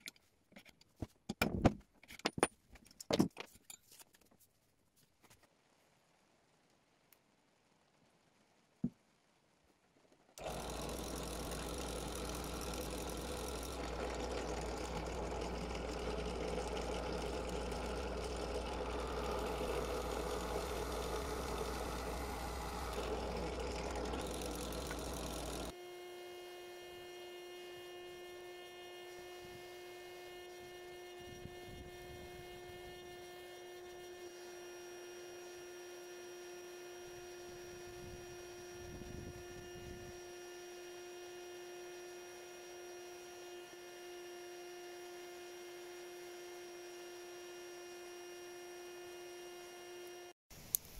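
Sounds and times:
drill press drilling metal: 10.4s - 25.8s
electric hum with high whine: 10.6s - 50.3s.

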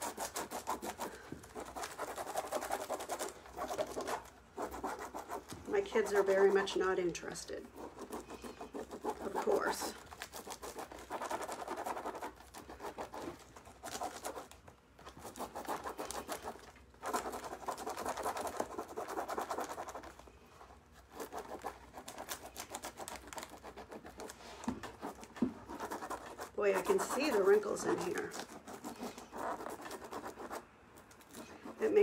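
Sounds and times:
hands rubbing scratchy transfer: 0.0s - 6.8s, 21.0s - 30.6s.

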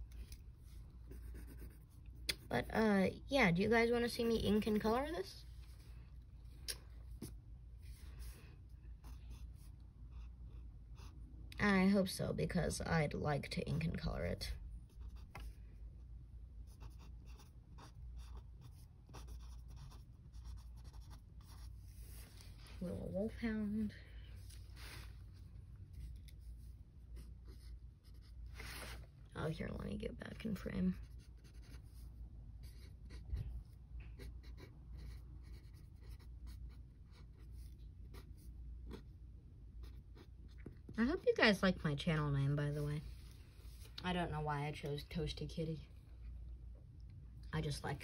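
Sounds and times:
pen scratching on paper: 1.1s - 2.9s, 16.7s - 23.1s, 26.0s - 28.4s, 30.9s - 39.1s, 39.8s - 40.8s.

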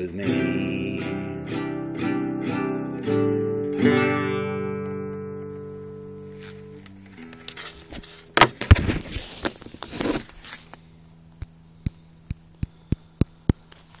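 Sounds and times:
acoustic guitar chord: 0.0s - 8.4s
faint steady hum: 5.5s - 14.0s
sharp single clicks: 11.4s - 13.8s.

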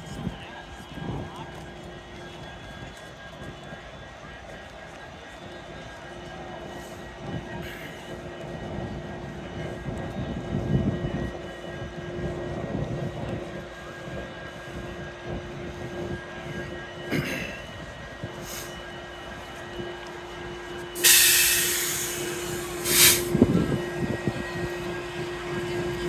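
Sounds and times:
engine drone: 0.2s - 26.0s.

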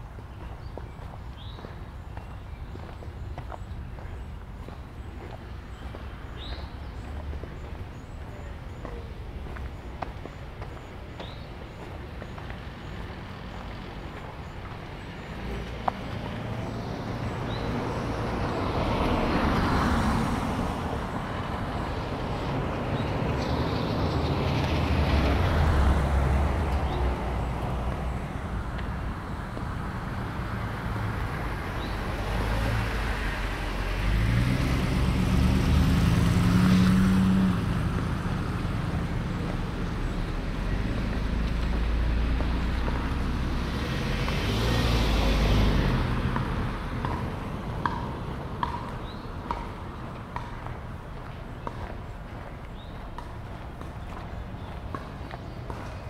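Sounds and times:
cars passing: 0.0s - 56.0s.

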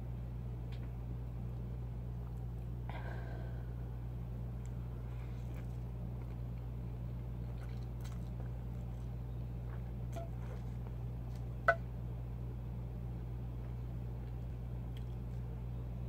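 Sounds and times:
steady low hum: 0.0s - 16.0s
person chewing food: 4.6s - 11.8s, 14.2s - 15.5s.

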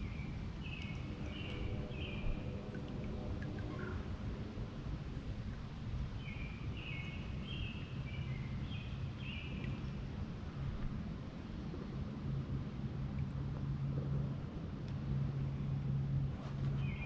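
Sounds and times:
songbird singing: 0.0s - 2.8s, 6.1s - 10.1s, 16.7s - 17.0s
steady low rumble: 0.0s - 17.0s.

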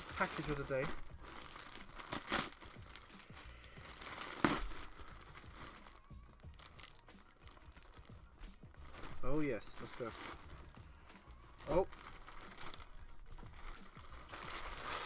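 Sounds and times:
packaging tearing: 0.0s - 10.8s, 11.6s - 15.0s
packaging rustling: 0.0s - 15.0s.

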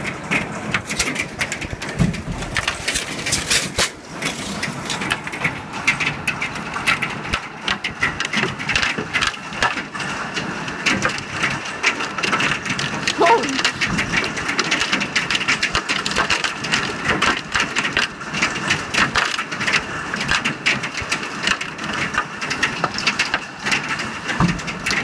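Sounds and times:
hailstones clattering: 0.0s - 25.0s
heavy rain hissing: 12.6s - 14.6s.

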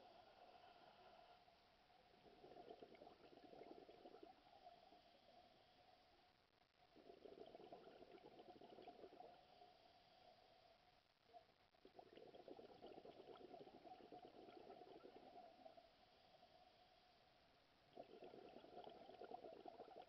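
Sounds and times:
scuba diver exhaling bubbles: 17.9s - 20.0s.

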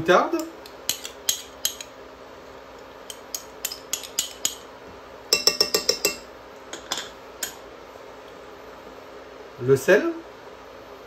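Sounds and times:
metal spoon clinking against glass: 5.3s - 6.3s.

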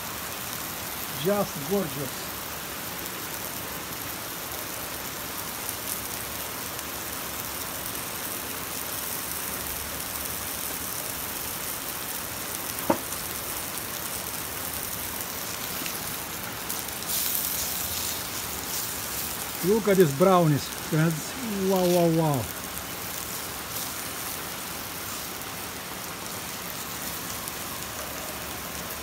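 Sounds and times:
eggplant sizzling in hot oil: 0.0s - 29.0s.

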